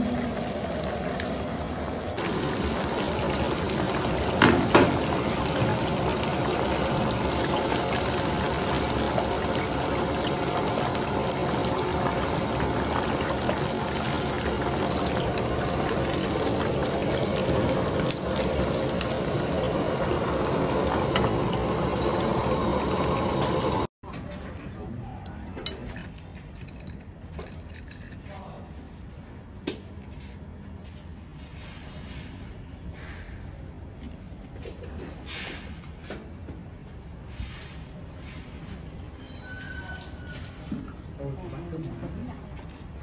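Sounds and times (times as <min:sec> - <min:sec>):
fish deep-frying in oil: 0:00.0 - 0:23.9, 0:38.3 - 0:41.0.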